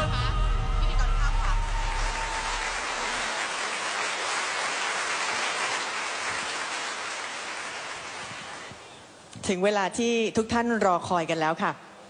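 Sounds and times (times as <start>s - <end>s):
audience applauding: 1.0s - 8.9s.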